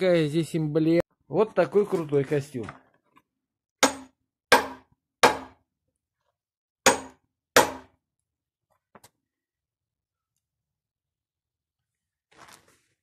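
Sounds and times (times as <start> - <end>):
hammer striking chisel on metal: 3.8 - 5.6, 6.9 - 7.9.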